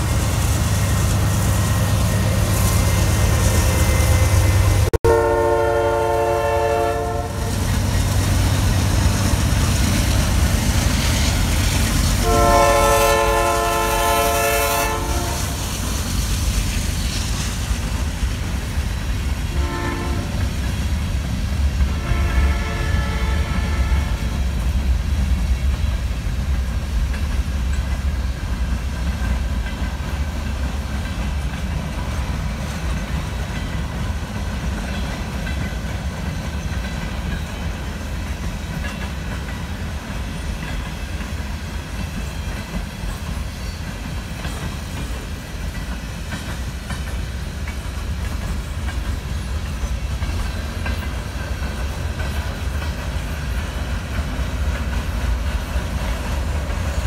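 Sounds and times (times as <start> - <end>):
freight cars rumbling on rails: 0.0 - 57.0
wheels clicking over rail joints: 24.2 - 57.0.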